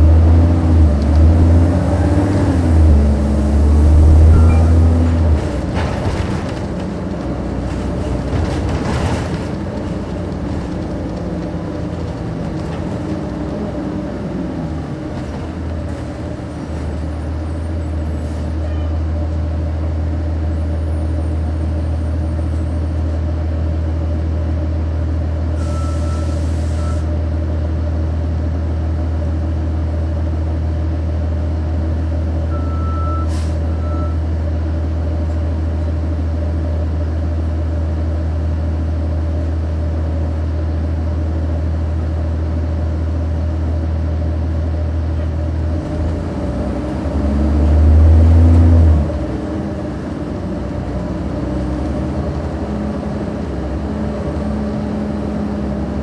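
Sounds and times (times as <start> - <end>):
diesel bus engine idling: 0.0 - 47.3, 48.0 - 56.0
short beeps: 4.3 - 4.9, 25.6 - 27.0, 32.5 - 34.2
air hiss from bus: 25.6 - 27.1, 33.2 - 33.8.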